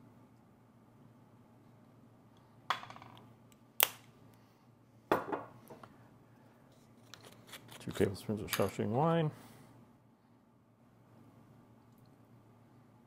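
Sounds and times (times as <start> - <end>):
glass bottles set on counter: 5.1 - 5.8.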